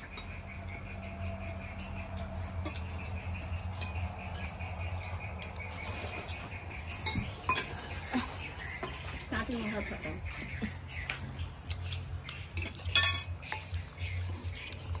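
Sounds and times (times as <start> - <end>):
low hum: 0.0 - 15.0
spoons clicking against dishes: 8.6 - 9.9, 11.0 - 15.0.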